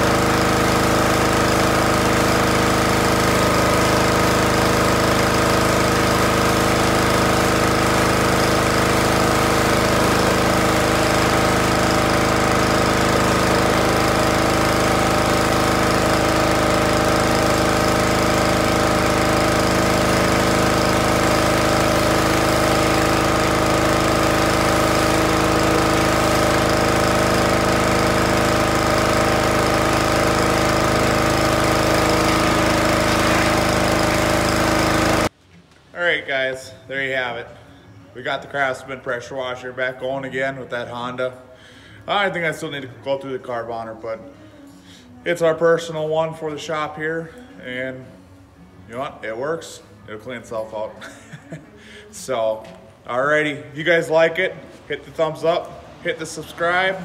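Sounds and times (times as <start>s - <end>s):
water spraying: 0.0s - 35.3s
pressure washer engine running: 0.0s - 35.4s, 49.0s - 57.0s.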